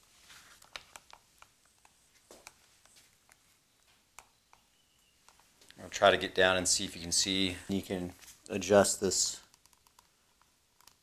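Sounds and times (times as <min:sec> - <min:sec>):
soft handling noise: 0:00.0 - 0:05.9, 0:07.3 - 0:08.8.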